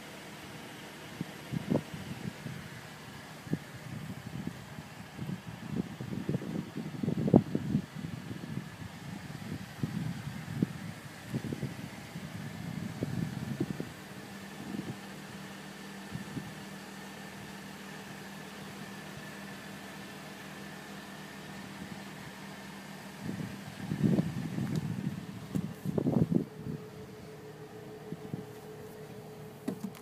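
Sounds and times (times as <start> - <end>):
faint high whine: 23.3 - 30.0
mechanical hum: 23.3 - 30.0.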